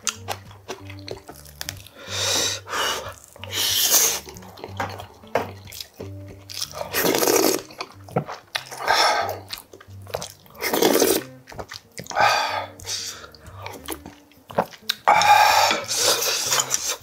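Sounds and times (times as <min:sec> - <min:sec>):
faint background music: 0:00.0 - 0:17.0
blowing and slurping broth: 0:01.9 - 0:05.8, 0:06.6 - 0:09.5, 0:10.1 - 0:13.7, 0:14.6 - 0:17.0.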